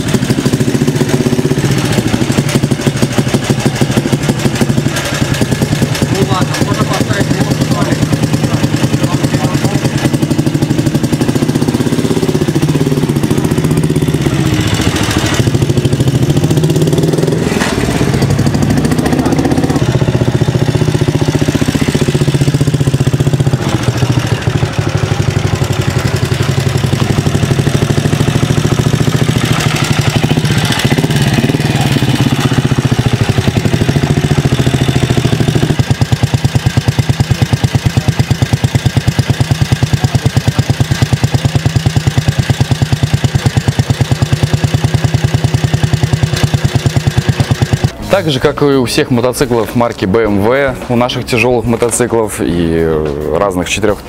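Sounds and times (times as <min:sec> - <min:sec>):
motorcycle engine idling: 0:00.0 - 0:54.0
motorcycle engine revving: 0:00.0 - 0:54.0.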